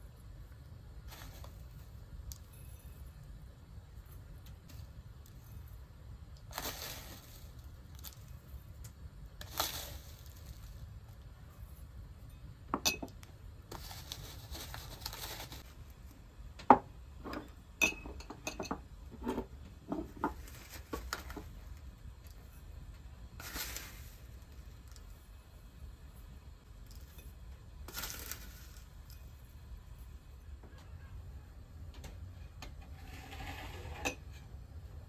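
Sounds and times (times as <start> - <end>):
dry pastry strands rustling: 6.4 - 11.3, 13.7 - 16.0, 20.2 - 21.9, 23.3 - 25.2, 27.8 - 29.1
glass bowls clinking on wood: 17.2 - 18.8.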